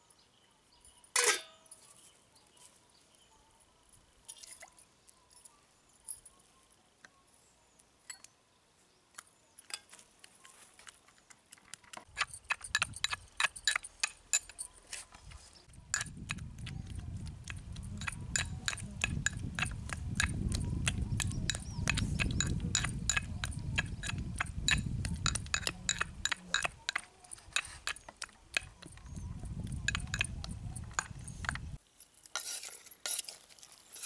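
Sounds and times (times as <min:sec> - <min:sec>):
metal pestle clinking in mortar: 0:01.2 - 0:01.7, 0:12.1 - 0:14.8, 0:15.8 - 0:31.8.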